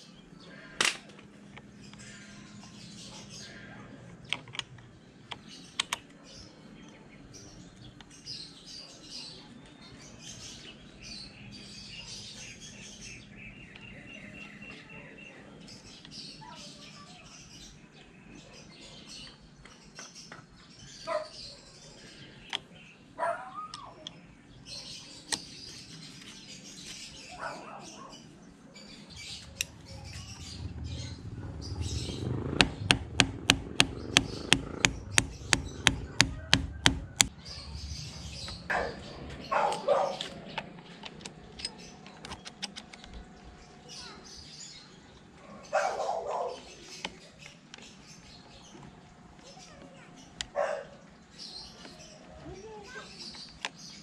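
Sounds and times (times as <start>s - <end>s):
birds chirping and trilling: 0.0s - 54.0s
sharp clicks: 4.2s - 6.2s, 32.3s - 37.3s, 40.2s - 43.2s
sharp evenly spaced taps: 32.5s - 37.3s.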